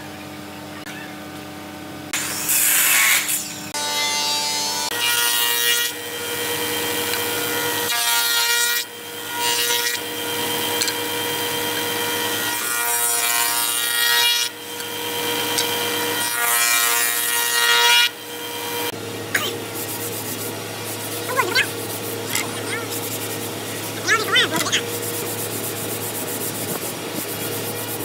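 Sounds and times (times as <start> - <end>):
router cutting wood: 2.2 - 28.0
router whining: 8.8 - 28.0.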